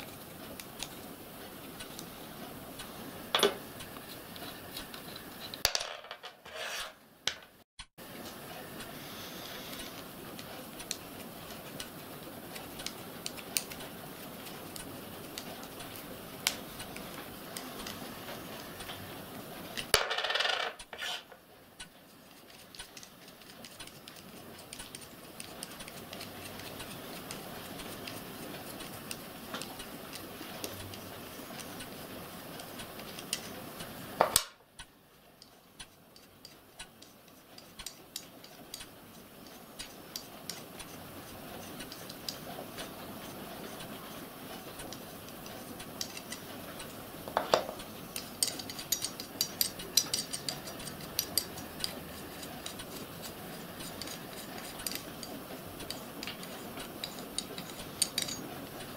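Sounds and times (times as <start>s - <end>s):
light metallic clicks and taps: 44.8s - 58.4s.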